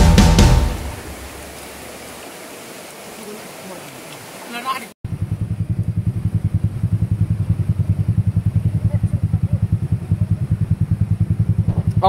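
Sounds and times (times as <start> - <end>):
motorcycle engine idling: 5.1 - 12.0.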